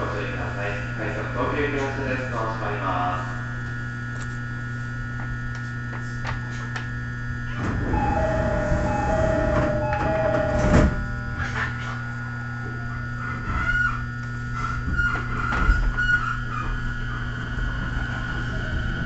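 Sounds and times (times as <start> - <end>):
train car hum: 0.0 - 19.0
train doors sliding shut: 7.6 - 11.8
two-tone door chime: 7.8 - 11.6.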